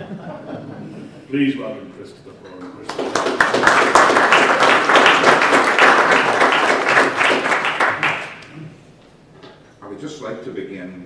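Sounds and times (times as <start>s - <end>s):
audience applauding: 2.8s - 8.5s.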